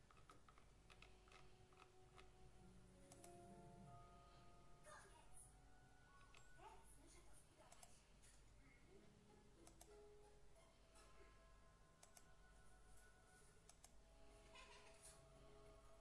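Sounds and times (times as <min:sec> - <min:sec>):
computer mouse clicks: 0:03.1 - 0:03.4, 0:07.7 - 0:08.0, 0:09.6 - 0:09.9, 0:12.0 - 0:12.3, 0:13.7 - 0:14.0.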